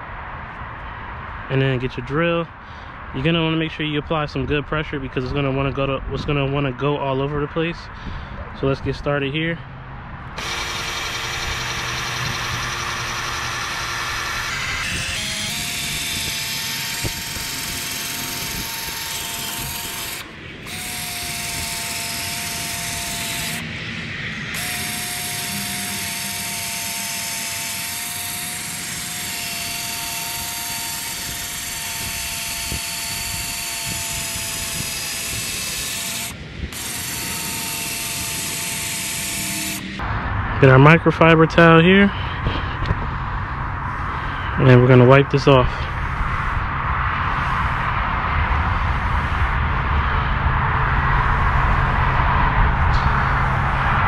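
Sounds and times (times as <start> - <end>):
sanding disc rasping on plastic: 10.4 - 23.8, 24.5 - 39.9
power drill motor whine: 10.4 - 40.0.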